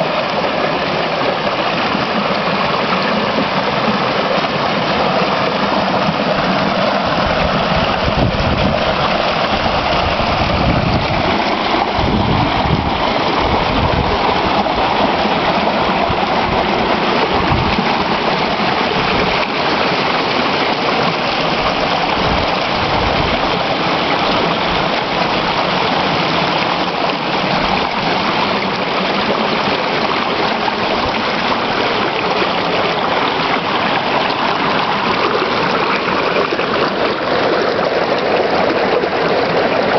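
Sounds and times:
creek splashing over boulders: 0:00.0 - 0:39.9
low rumble of water: 0:00.0 - 0:39.9.

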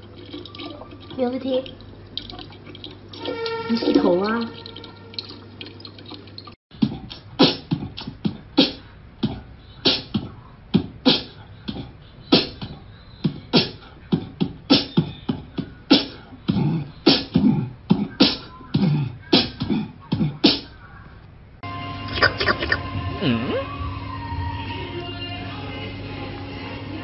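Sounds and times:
beatboxing clicks and thumps: 0:06.7 - 0:20.8, 0:22.1 - 0:22.8.

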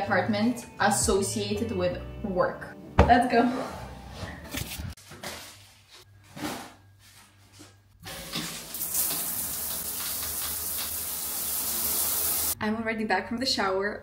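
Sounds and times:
shower water spraying on tiles: 0:08.2 - 0:12.6.

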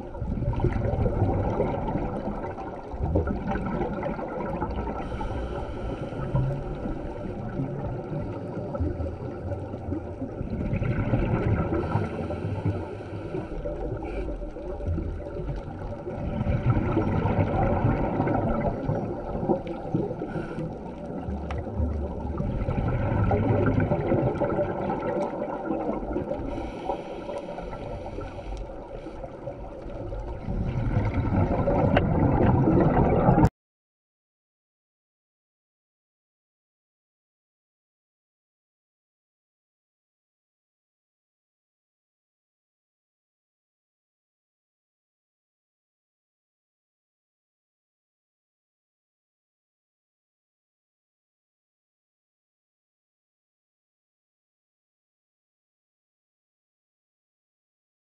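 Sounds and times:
bubble exhalations gurgling: 0:00.0 - 0:26.7, 0:29.0 - 0:33.5
scuba regulator breathing: 0:05.0 - 0:06.8, 0:11.7 - 0:14.7, 0:20.1 - 0:21.1, 0:26.4 - 0:29.9.

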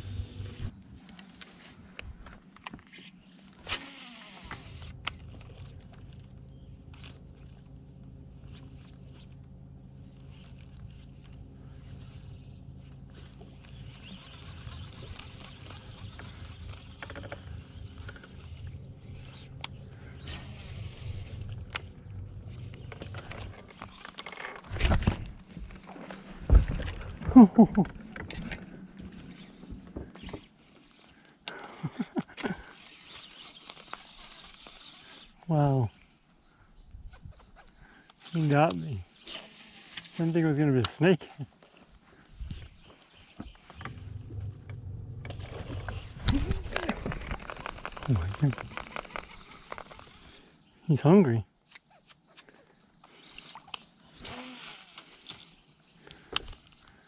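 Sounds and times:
steady low hum: 0:00.0 - 0:02.4, 0:04.3 - 0:32.9, 0:41.2 - 0:50.8
hand handling camera: 0:00.7 - 0:35.0, 0:40.8 - 0:50.3, 0:54.8 - 0:56.9.

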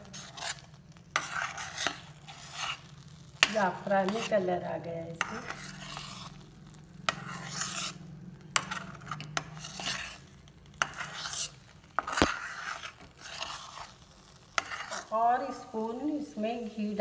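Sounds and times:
ladle scraping paste in a pan: 0:00.0 - 0:15.6.

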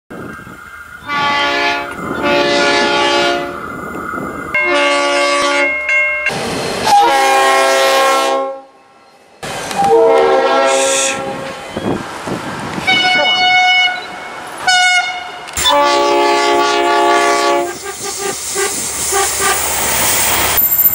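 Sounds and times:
diesel locomotive air horns: 0:01.0 - 0:03.6, 0:04.6 - 0:05.8, 0:06.8 - 0:08.8, 0:09.7 - 0:11.6, 0:12.8 - 0:19.8.

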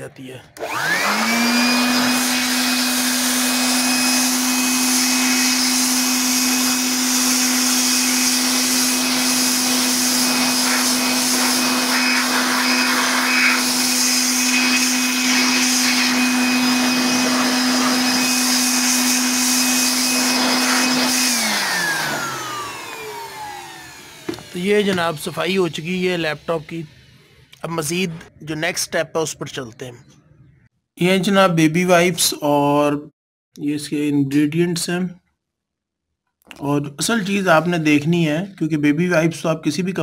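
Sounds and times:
electric air blower whining: 0:00.5 - 0:27.5.

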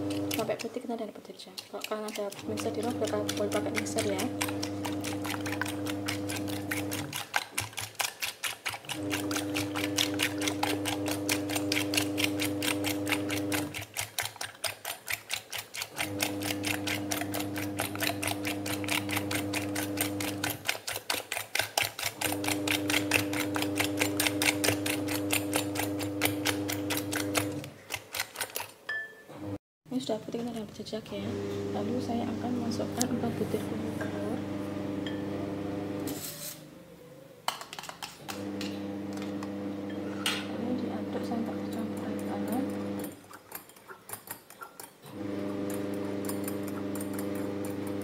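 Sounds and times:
whisk clicking against glass bowl: 0:01.6 - 0:28.7, 0:45.7 - 0:48.0.

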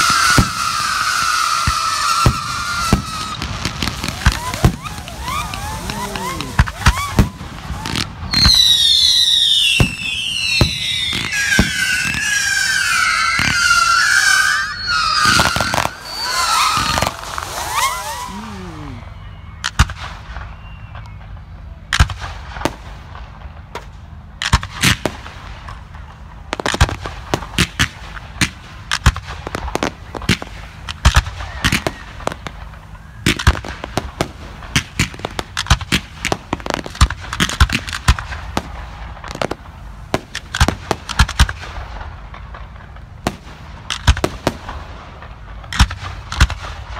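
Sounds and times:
crackling firework reports: 0:00.0 - 0:46.9
firework bangs: 0:00.0 - 0:46.9
whistling fireworks: 0:00.0 - 0:46.9.

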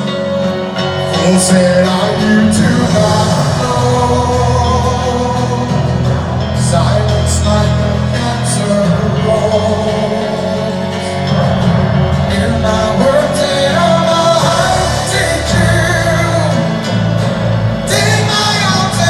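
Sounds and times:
live band with piano: 0:00.0 - 0:19.0
person singing: 0:00.0 - 0:19.0.

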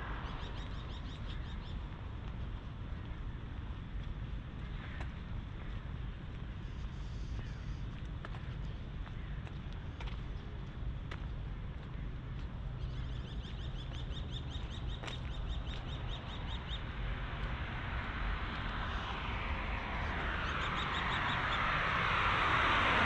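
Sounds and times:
vehicle approaching: 0:12.8 - 0:23.0.

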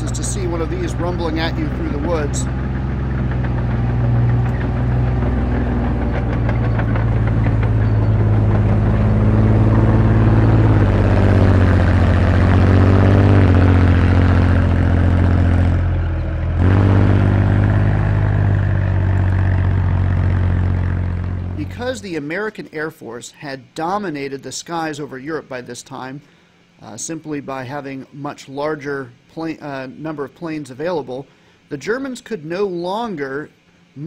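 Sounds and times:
tank engine droning: 0:00.0 - 0:22.3.

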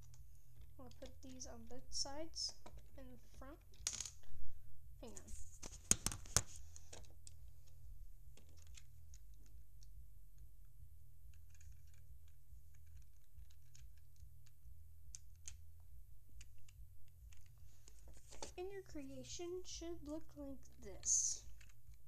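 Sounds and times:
plastic bricks clicking: 0:00.0 - 0:01.2
steady low hum: 0:00.0 - 0:22.0.

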